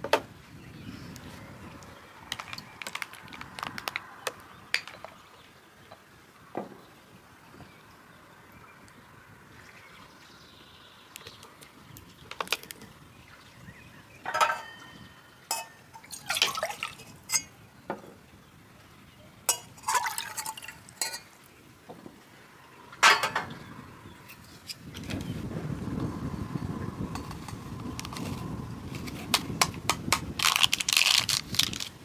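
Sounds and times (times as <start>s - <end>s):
cups and pot knocking: 3.8s - 5.2s, 14.3s - 18.1s
water pouring into cups: 15.5s - 17.4s, 19.5s - 21.3s.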